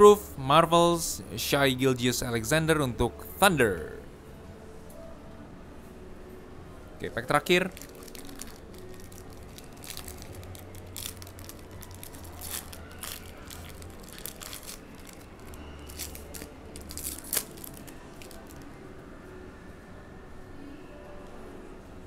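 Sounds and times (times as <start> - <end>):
wrapper tearing and crinkling: 7.6 - 18.6.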